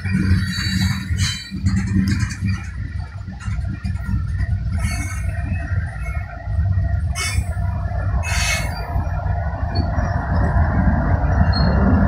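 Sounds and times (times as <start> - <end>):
diesel locomotive rumble: 0.0 - 12.0
train wheels rumbling on rails: 0.0 - 12.0
high-pitched wheel squeals: 8.2 - 9.0.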